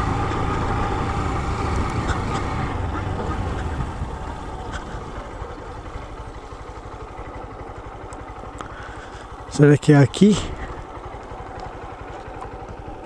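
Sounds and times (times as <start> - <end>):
wind noise: 0.0 - 5.3
motorcycle engine running: 0.0 - 13.0.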